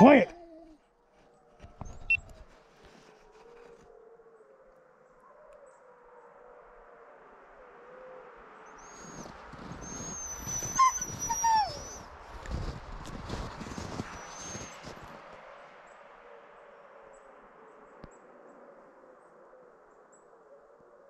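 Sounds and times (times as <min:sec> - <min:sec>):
distant wolf howling: 0:00.0 - 0:15.6
dog whining: 0:08.9 - 0:12.0, 0:14.1 - 0:14.8
scuffling movement: 0:09.5 - 0:15.2
dog yelping: 0:09.8 - 0:12.0.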